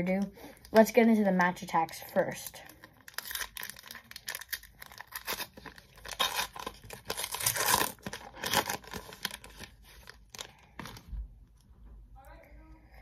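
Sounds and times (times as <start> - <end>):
foil wrapper tearing and crinkling: 2.3 - 11.0.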